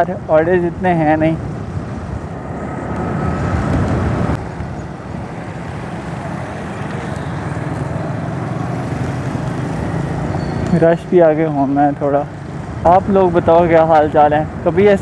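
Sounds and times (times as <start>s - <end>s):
road and wind noise: 0.0s - 15.0s
motorcycle engine running: 2.7s - 11.4s.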